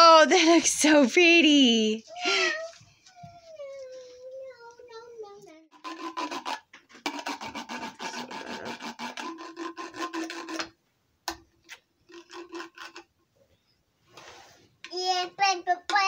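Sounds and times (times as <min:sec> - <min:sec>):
rapid rasping scratches: 0:05.8 - 0:10.7, 0:12.1 - 0:13.1.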